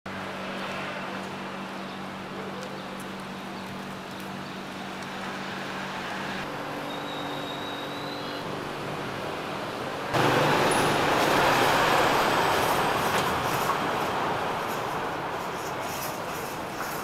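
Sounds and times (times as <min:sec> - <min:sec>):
street background noise: 0:00.1 - 0:17.0.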